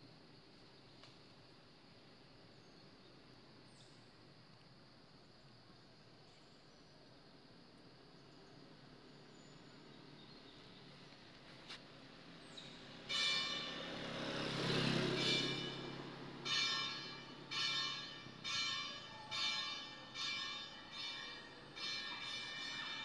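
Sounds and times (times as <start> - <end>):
bell ringing: 13.1 - 13.8, 15.2 - 23.0.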